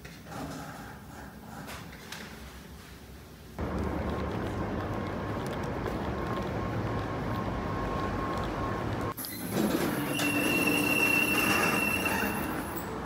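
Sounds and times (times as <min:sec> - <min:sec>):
street ambience: 0:03.6 - 0:13.0
high-pitched squeal: 0:09.2 - 0:13.0.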